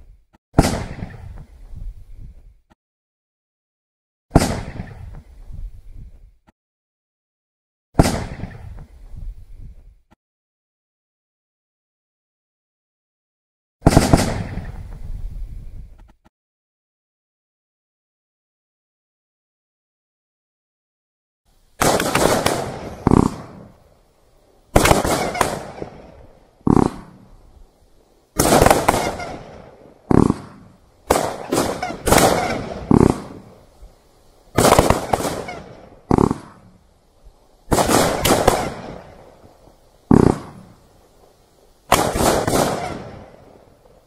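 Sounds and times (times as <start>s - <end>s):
firework bangs: 0.6s - 1.4s, 4.3s - 5.1s, 8.0s - 8.8s, 13.8s - 14.9s, 21.8s - 24.0s, 24.7s - 36.9s, 37.6s - 44.0s.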